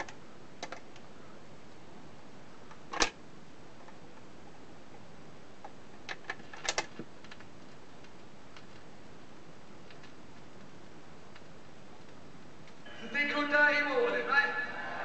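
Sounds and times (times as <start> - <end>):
record player autochanger clicks and clunks: 2.8 - 3.2.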